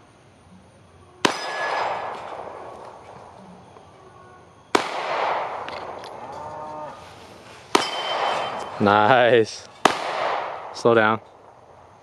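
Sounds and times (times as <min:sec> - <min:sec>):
pistol shot echoing: 0:01.2 - 0:03.1, 0:04.7 - 0:06.0, 0:07.7 - 0:09.1, 0:09.8 - 0:11.6.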